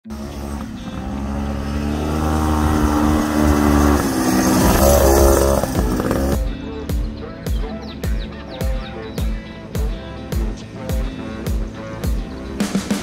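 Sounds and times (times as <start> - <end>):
two-stroke engine revving: 0.0 - 13.0
music with a beat: 2.8 - 13.0.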